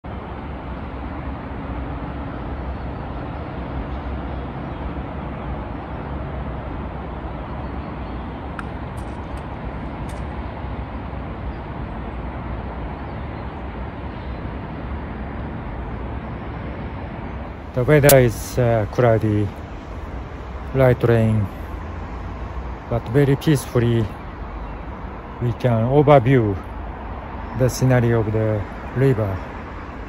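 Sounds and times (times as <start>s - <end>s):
even hiss: 17.8s - 19.6s.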